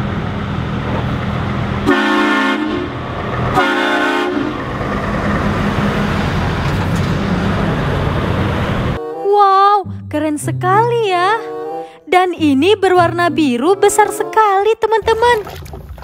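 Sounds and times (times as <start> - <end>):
diesel truck engine rumble: 0.0 - 9.0
truck horn blasts: 1.8 - 4.7, 9.0 - 10.2, 11.0 - 14.9.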